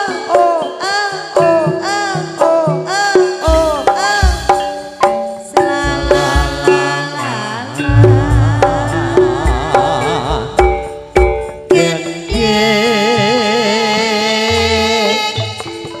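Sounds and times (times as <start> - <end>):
melodic line: 7.9 - 10.6
deep bass beats: 7.9 - 11.4
hand drum strokes: 7.9 - 11.9.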